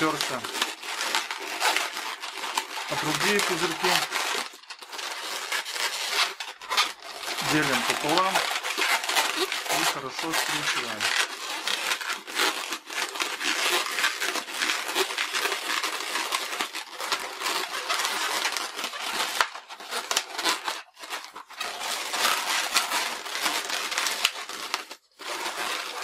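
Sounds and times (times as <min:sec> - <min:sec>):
balloon rubbing and crinkling: 0:00.0 - 0:26.0.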